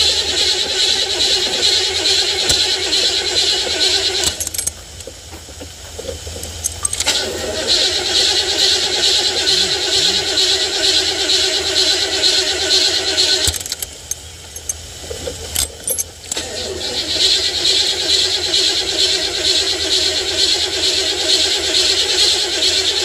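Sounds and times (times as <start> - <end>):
starter motor cranking engine: 0.0 - 23.0
clicks: 12.8 - 16.5.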